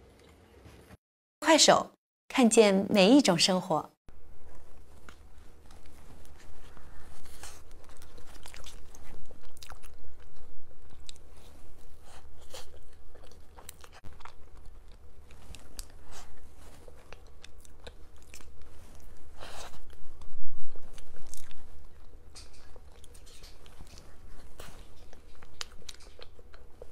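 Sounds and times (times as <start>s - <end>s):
low hum: 4.1s - 26.9s
person chewing cake: 4.3s - 26.9s
mouth clicks and crunches: 5.0s - 20.0s, 20.9s - 26.9s.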